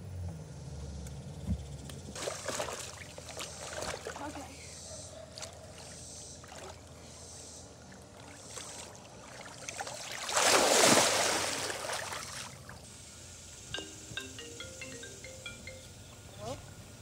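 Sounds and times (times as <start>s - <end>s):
pool water splashing: 2.2s - 4.6s, 5.2s - 13.0s.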